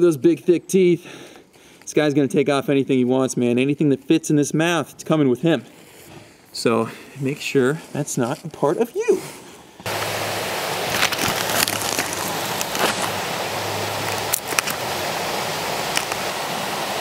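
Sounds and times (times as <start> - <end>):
creek rushing: 9.8 - 17.0.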